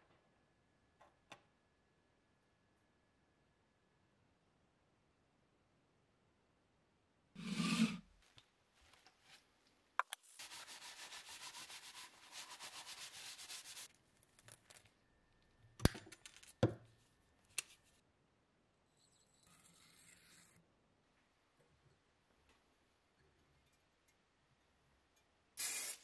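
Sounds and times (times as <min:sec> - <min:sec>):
quick even scraping: 0:07.4 - 0:08.0.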